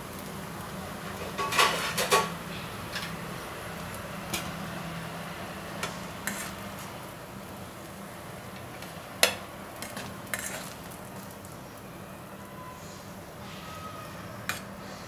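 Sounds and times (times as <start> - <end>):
metal spatula scraping a steel pan: 6.2 - 6.6, 9.9 - 10.8.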